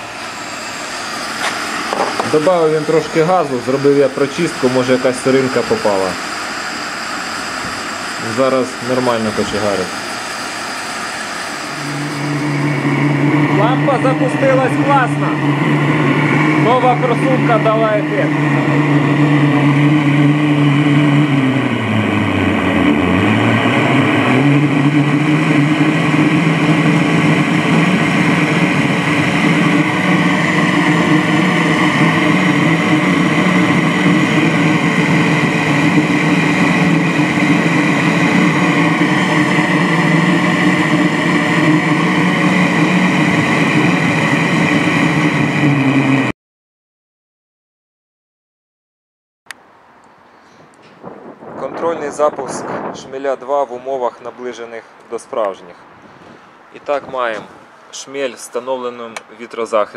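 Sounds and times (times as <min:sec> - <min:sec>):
stove burner roaring: 0:00.0 - 0:46.3.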